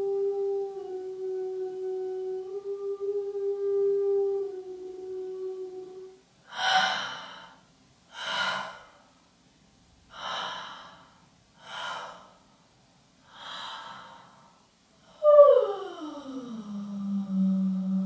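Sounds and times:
person gasping: 6.5s - 9.0s, 10.1s - 12.4s, 13.3s - 14.5s
held vocal note: 15.1s - 18.0s.

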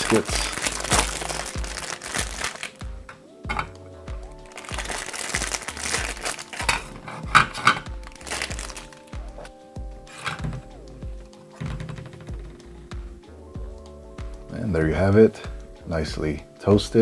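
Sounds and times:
plastic wrapper crinkling: 0.0s - 2.8s, 4.4s - 9.5s
background music: 0.0s - 17.0s.

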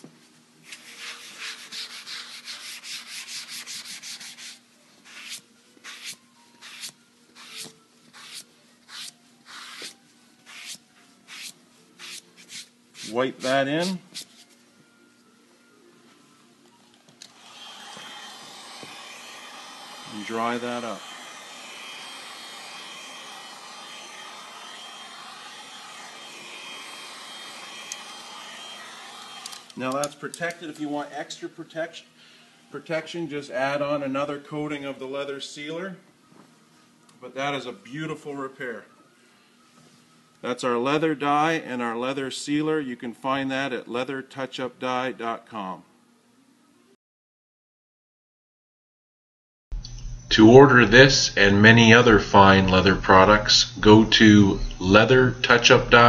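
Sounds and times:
sponge rubbing leather: 0.7s - 13.2s
hair dryer blowing: 17.2s - 29.9s.

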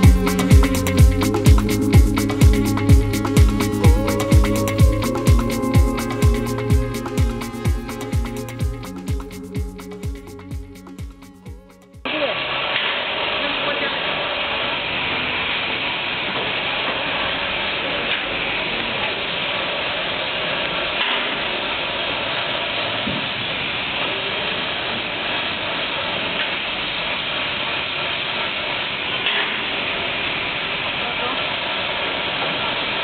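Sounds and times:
blender running: 12.1s - 19.8s.

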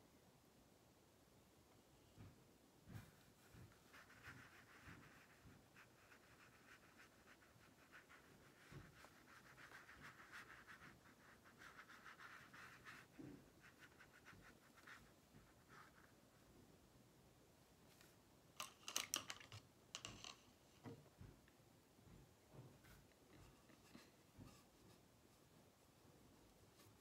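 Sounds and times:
paintbrush strokes on paper: 2.0s - 16.7s, 22.0s - 27.0s.

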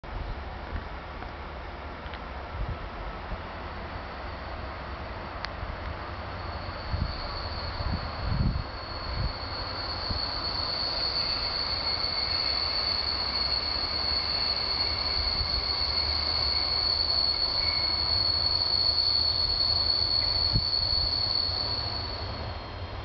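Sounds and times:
train brakes squealing: 6.0s - 23.0s.

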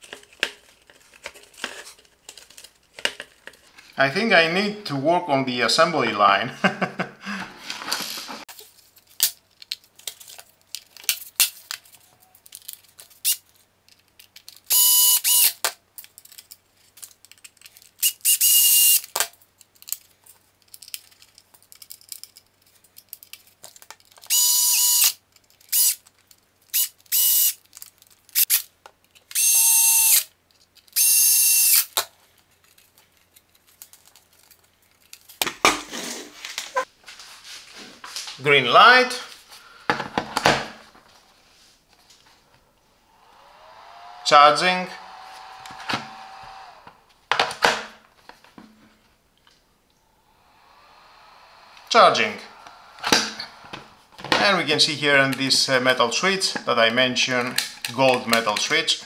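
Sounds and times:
electric screwdriver running: 14.7s - 15.5s, 18.0s - 19.0s, 24.3s - 25.2s, 26.8s - 27.5s, 29.4s - 30.3s, 31.0s - 31.9s, 43.0s - 47.2s, 50.6s - 54.0s.

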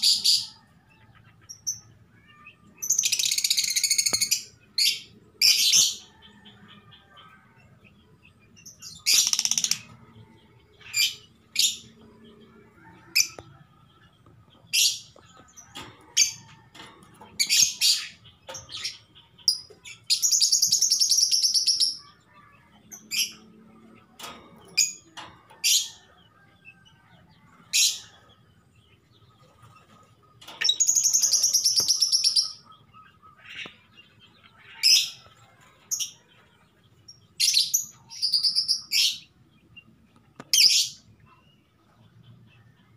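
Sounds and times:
lovebird chirping: 30.6s - 33.5s.

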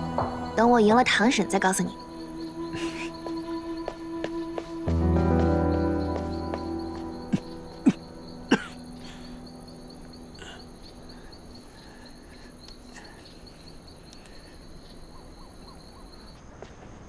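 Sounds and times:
crickets chirping: 0.0s - 17.0s
man coughing: 7.3s - 8.8s.

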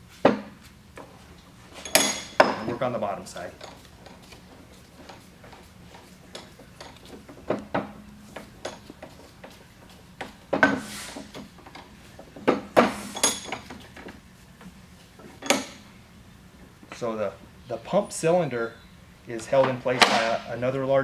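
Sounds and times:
metal clanks and clinks: 1.8s - 2.8s, 5.0s - 9.2s, 13.1s - 13.8s, 15.4s - 15.8s.

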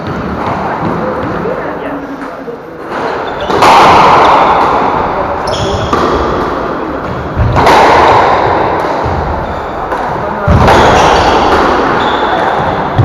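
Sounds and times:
squash ball striking walls: 0.0s - 1.6s, 2.8s - 13.0s
shoe squeaks on wooden floor: 3.2s - 3.5s, 5.4s - 5.9s, 9.4s - 9.9s, 10.8s - 12.7s.

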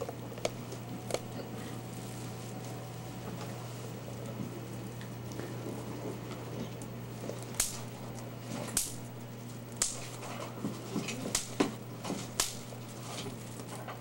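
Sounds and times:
plastic crinkling: 0.3s - 4.2s.

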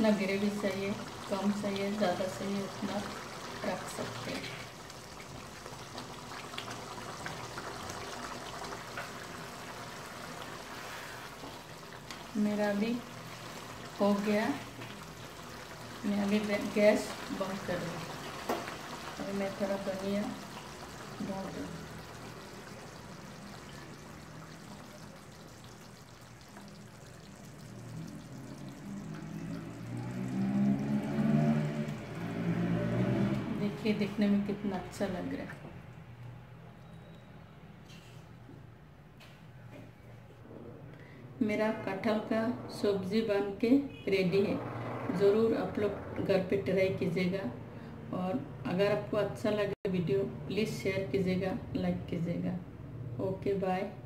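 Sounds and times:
curry bubbling with small pops: 0.2s - 32.7s.

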